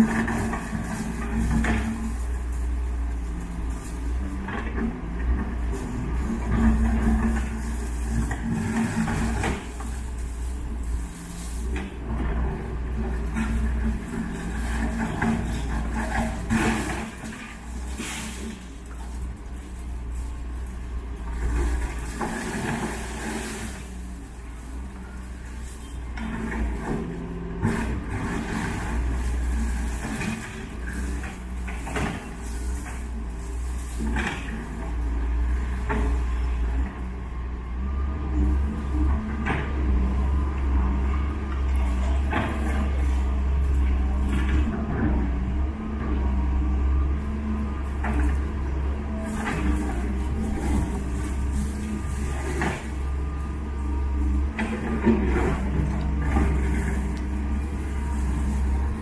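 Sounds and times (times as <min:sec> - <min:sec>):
concrete debris clattering: 0:00.0 - 0:37.0, 0:47.7 - 0:59.0
excavator diesel engine running: 0:00.0 - 0:59.0.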